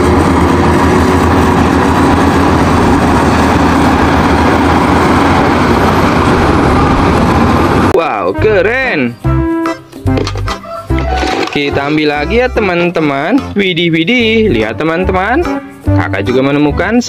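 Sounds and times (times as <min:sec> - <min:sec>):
bulldozer diesel engine running: 0:00.0 - 0:08.7.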